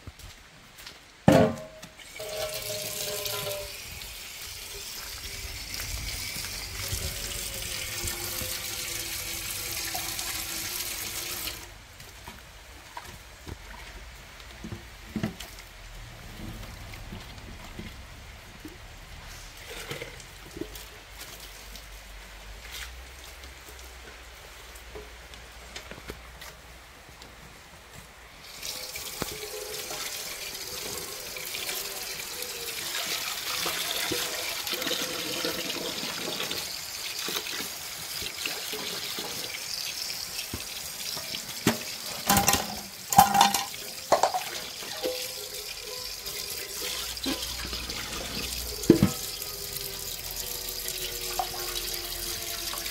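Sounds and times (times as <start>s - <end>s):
water running over dishes: 1.5s - 24.9s, 28.4s - 52.9s
dishes clinking together: 42.2s - 46.0s.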